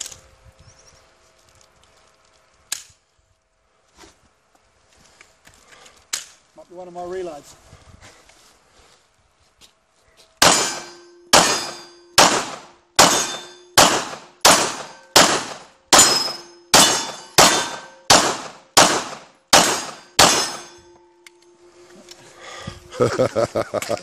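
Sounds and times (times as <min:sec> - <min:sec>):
pistol shots: 0:10.4 - 0:20.8.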